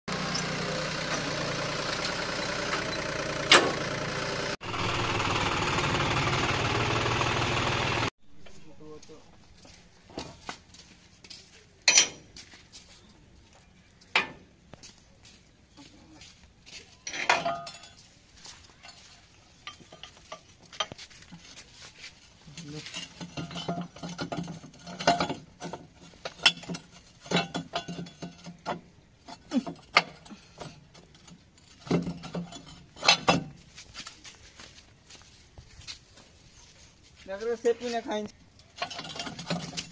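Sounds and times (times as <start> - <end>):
steel hitch parts clanking: 0.1 - 4.6, 11.8 - 12.4, 14.1 - 14.5, 17.0 - 34.2, 38.2 - 39.9.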